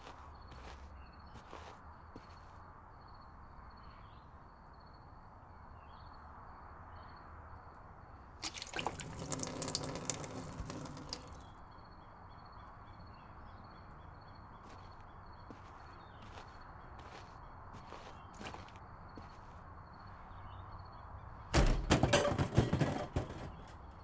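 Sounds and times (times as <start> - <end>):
gasoline splashing: 8.4 - 11.5.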